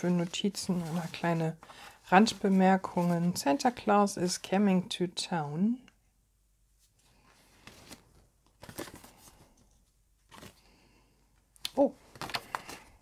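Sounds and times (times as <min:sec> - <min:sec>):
cards rustling and sliding: 0:07.2 - 0:09.7, 0:12.1 - 0:13.0.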